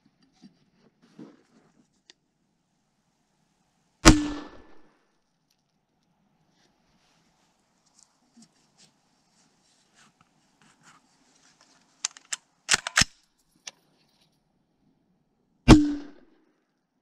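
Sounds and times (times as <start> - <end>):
loud rifle shot with thump: 4.0 - 4.9, 15.7 - 16.3
sharp mechanical clicks: 12.0 - 13.2.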